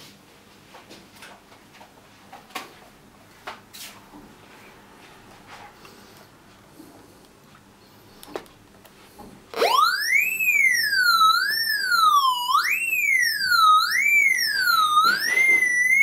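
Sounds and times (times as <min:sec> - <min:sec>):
metal detector siren-like tone: 0:09.5 - 0:16.0.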